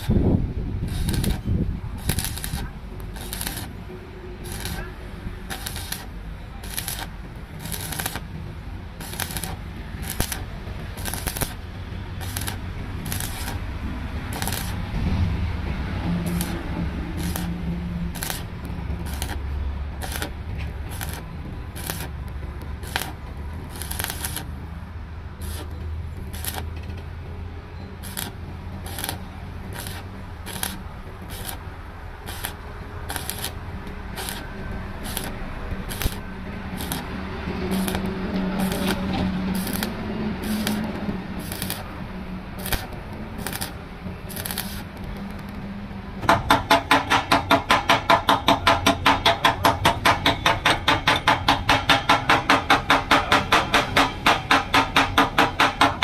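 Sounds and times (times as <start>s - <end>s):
welding arc crackling: 0.0s - 15.2s, 16.0s - 24.7s, 25.4s - 26.8s, 28.0s - 45.6s.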